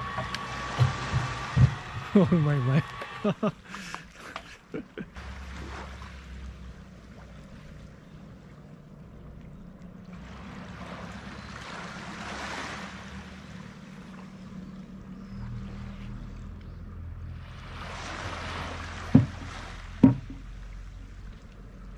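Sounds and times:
boat hull scraping: 0.0 - 6.5, 17.7 - 20.7
low steady hum: 0.0 - 12.0.

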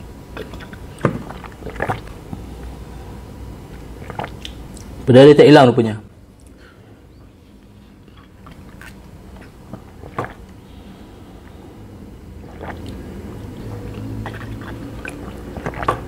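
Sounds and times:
man gulping and swallowing: 0.3 - 2.8, 3.6 - 5.0, 8.0 - 10.6, 12.3 - 16.0.

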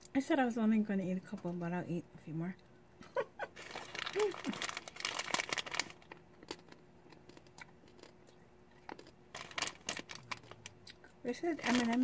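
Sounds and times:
plastic candy bag crinkling: 3.5 - 8.1, 8.9 - 12.0.

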